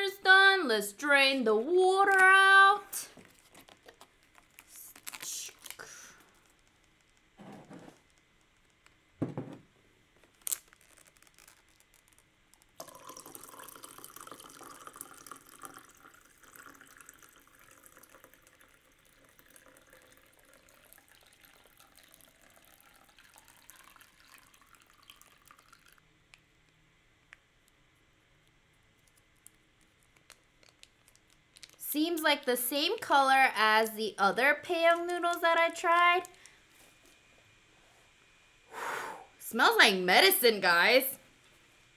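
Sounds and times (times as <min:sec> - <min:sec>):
water pouring into a cup: 0:12.8 - 0:26.0.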